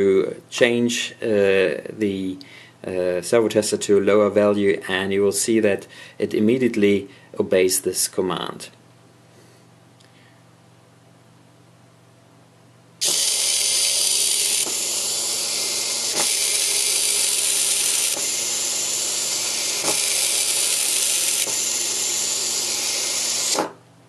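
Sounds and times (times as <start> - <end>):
small electric motor whirring: 13.0 - 23.8.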